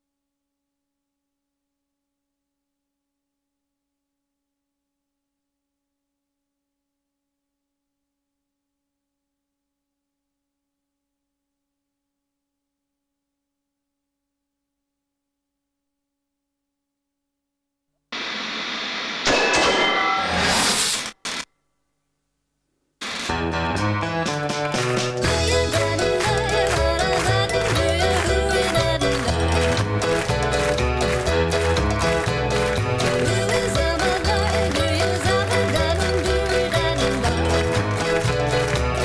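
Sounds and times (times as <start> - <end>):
tv static hiss: 18.1 - 19.3.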